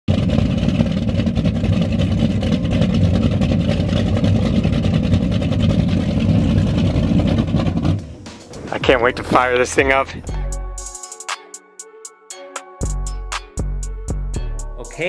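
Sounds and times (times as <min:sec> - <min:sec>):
boat engines idling: 0:00.1 - 0:10.8.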